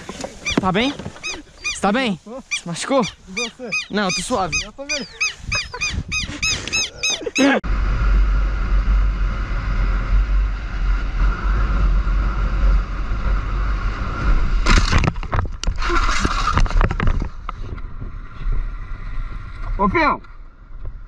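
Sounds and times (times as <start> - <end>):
motorcycle road and wind noise: 3.3 - 21.0
motorcycle crash: 14.2 - 17.5.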